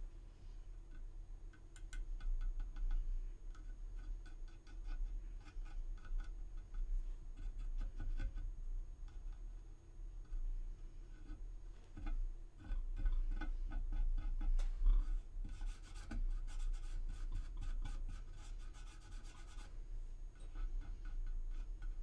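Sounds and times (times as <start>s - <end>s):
paintbrush ticking and clicking: 0.9s - 8.4s.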